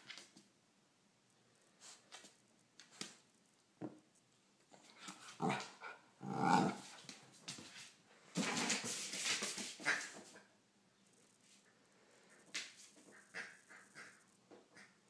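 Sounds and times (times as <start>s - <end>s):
puppy growling: 4.9s - 6.9s.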